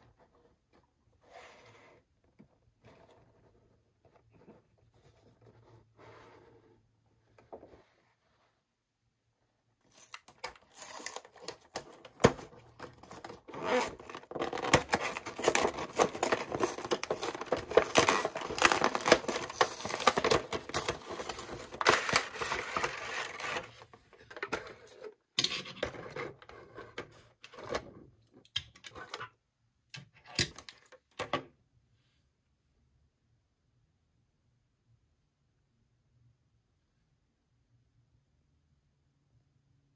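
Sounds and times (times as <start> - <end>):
packaging tearing and crinkling: 9.9 - 23.8.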